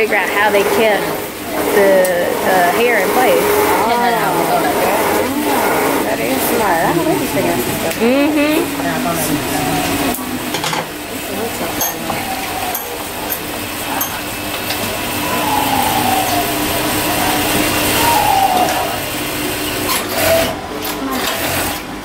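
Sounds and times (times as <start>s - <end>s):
steady hum: 0.0s - 21.2s
voices talking: 0.0s - 21.6s.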